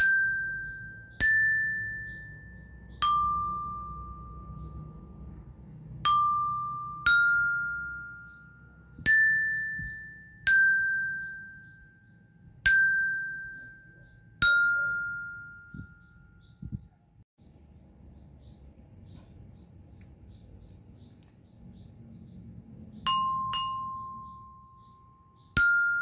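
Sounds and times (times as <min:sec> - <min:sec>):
bell lyre melody: 0:00.0 - 0:16.8, 0:23.1 - 0:26.0.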